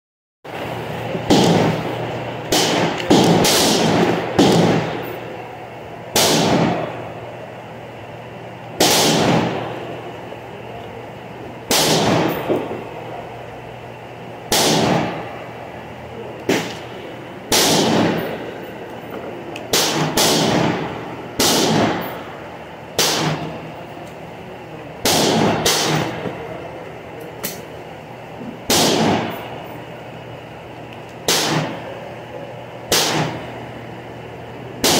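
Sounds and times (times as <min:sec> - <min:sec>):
gunshots echoing: 0:01.2 - 0:05.4, 0:06.1 - 0:07.0, 0:08.8 - 0:09.9, 0:11.7 - 0:12.8, 0:14.5 - 0:15.5, 0:16.4 - 0:23.7, 0:25.0 - 0:26.4, 0:28.7 - 0:29.5, 0:31.2 - 0:32.0, 0:32.9 - 0:33.5.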